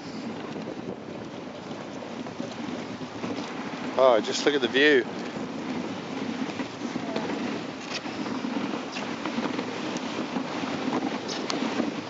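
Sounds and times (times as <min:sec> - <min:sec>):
sled runners hissing on snow: 0:02.6 - 0:12.0.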